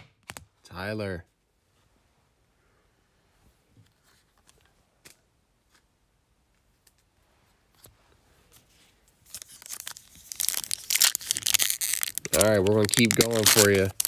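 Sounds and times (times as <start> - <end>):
foil pack crinkling: 9.2 - 14.0.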